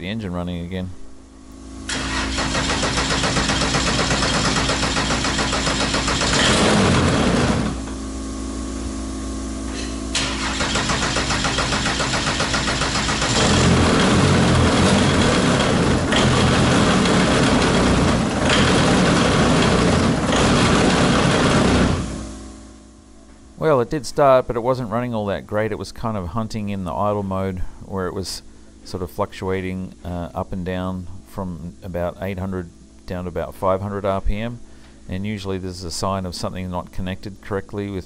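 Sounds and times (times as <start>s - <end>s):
aircraft engine cranking and idling: 1.9s - 8.0s, 9.7s - 22.4s.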